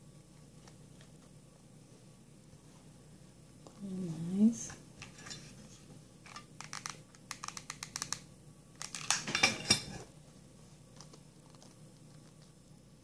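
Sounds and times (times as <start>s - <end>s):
small sharp clicks: 6.3s - 9.2s.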